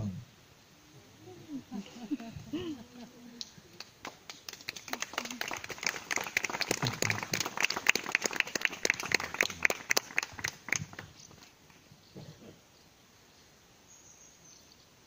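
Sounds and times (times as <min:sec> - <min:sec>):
people applauding: 0:03.4 - 0:11.4.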